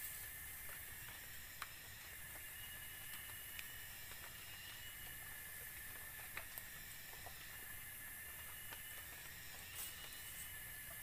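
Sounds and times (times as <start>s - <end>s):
grass rustling and clicking: 0.0s - 11.0s
outdoor hiss: 0.0s - 11.0s.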